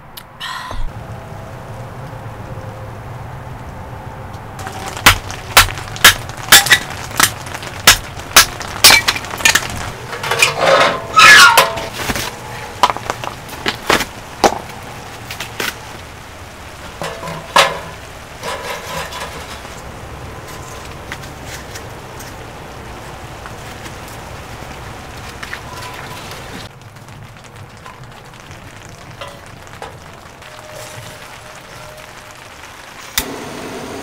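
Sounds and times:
wood clattering on stove metal: 4.6 - 15.8, 16.8 - 22.4.

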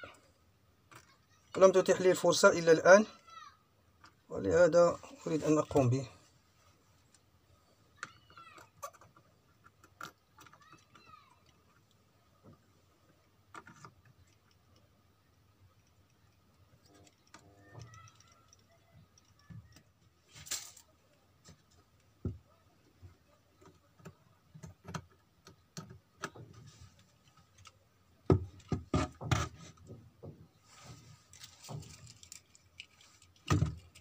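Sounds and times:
small clicks and taps: 21.4 - 27.8.

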